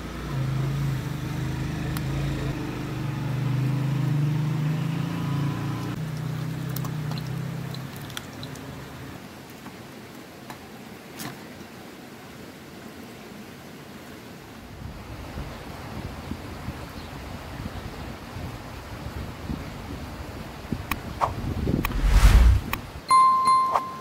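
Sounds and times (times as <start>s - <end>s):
low rumble: 21.8s - 22.8s.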